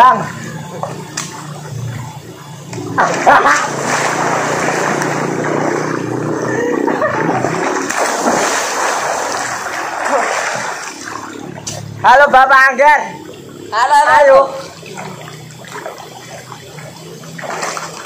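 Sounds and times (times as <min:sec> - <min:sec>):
swimmers splashing and churning water: 0:00.0 - 0:18.0
swimmer splashing into water: 0:02.7 - 0:12.0, 0:14.5 - 0:18.0.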